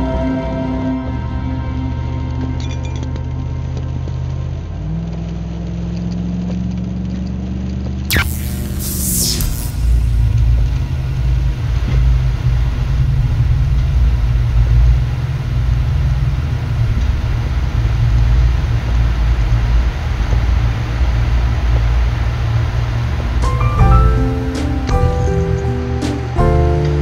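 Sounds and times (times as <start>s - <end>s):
engine and road rumble: 0.0s - 27.0s
tyres hissing on wet road: 8.7s - 27.0s.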